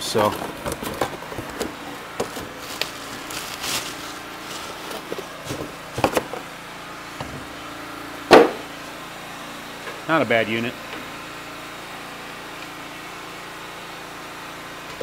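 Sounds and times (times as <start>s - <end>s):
cardboard box rustling: 0.1s - 6.5s
plastic packaging rustling: 0.1s - 6.6s
sharp loud knock: 8.3s - 8.7s.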